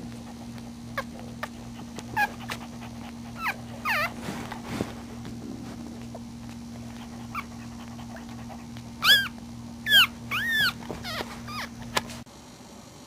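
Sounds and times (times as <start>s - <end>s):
steady low hum: 0.0s - 13.0s
puppy squealing: 1.0s - 2.7s, 3.3s - 4.2s, 9.0s - 12.0s.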